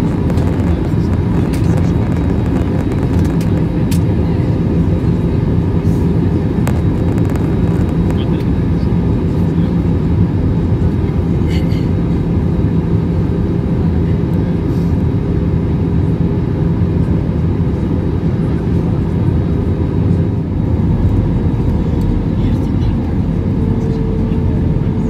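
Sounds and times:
airliner cabin engine rumble: 0.0 - 25.0.

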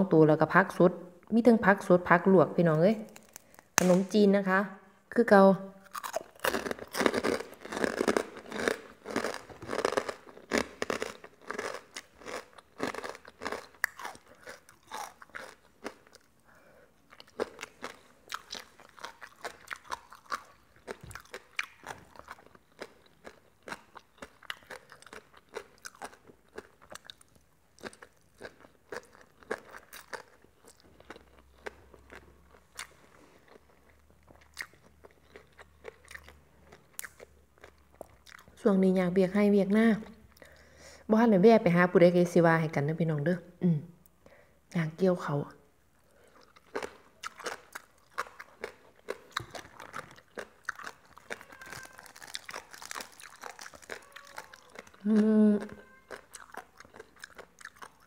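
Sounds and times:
chewing crispy pork rinds: 3.0 - 4.0, 5.8 - 38.6, 46.0 - 58.0.

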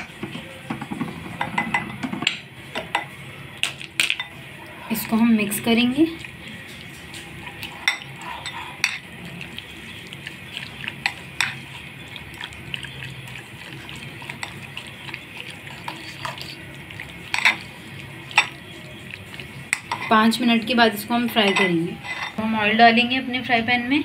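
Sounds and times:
utensil stirring wet marinade: 4.3 - 22.4
metal clinking against glass bowl: 17.3 - 17.7, 18.3 - 18.6, 19.7 - 20.3, 21.3 - 22.4.

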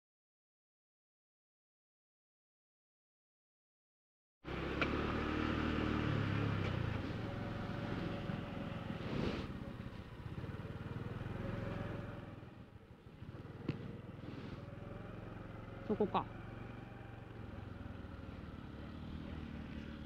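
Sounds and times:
small motorcycle engine running: 4.5 - 20.0
wind and road noise: 4.5 - 20.0.

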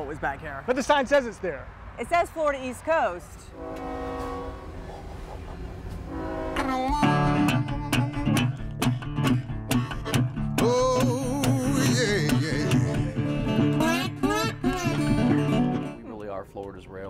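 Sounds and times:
strummed acoustic guitar music: 6.7 - 16.0.

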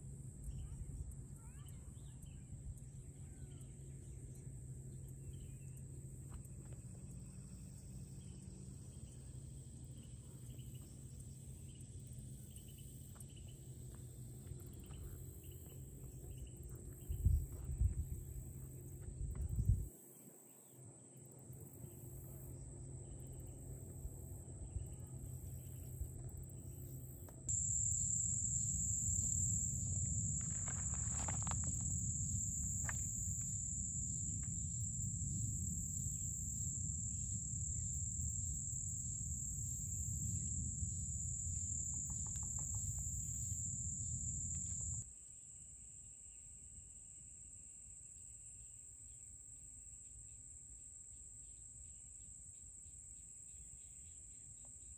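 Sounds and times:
insect chorus drone: 0.0 - 54.9
low rumble on microphone: 16.3 - 19.9.

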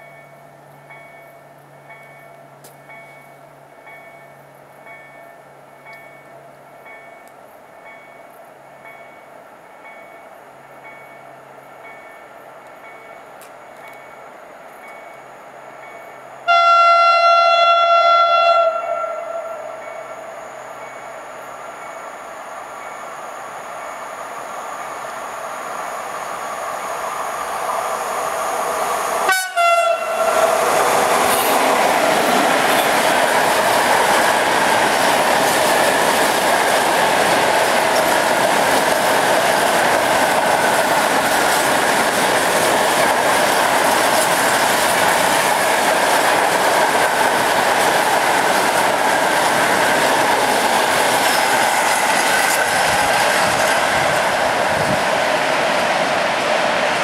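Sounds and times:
train rumble: 0.0 - 57.0
train horn: 16.4 - 20.4, 29.2 - 31.6
freight wagons running over rails: 29.9 - 57.0.

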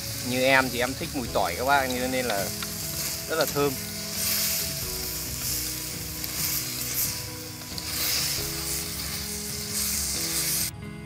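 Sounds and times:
chicken sizzling in a wok: 0.0 - 10.7
chopsticks stirring: 0.0 - 10.7
background music: 0.0 - 11.0.

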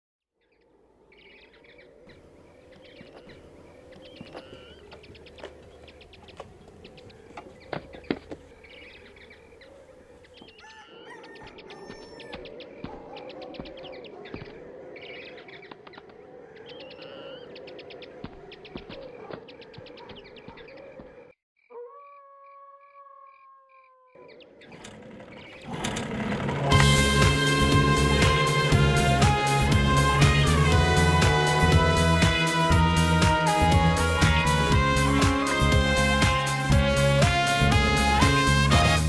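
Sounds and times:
birds chirping: 0.4 - 39.0
rapid bird trills: 1.2 - 25.8
high buzzing trill: 26.7 - 39.0.

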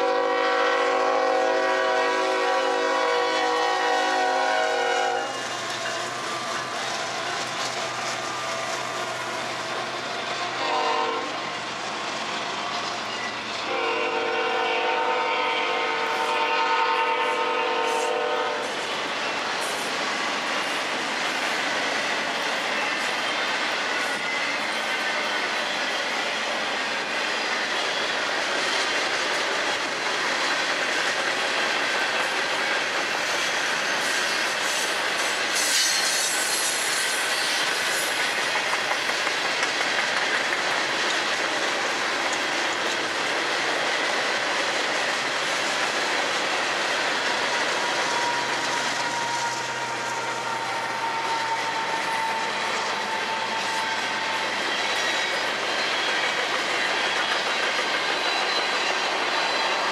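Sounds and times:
train wheels clattering on rails: 0.0 - 15.1, 15.8 - 59.9
train clank: 20.6 - 59.9.

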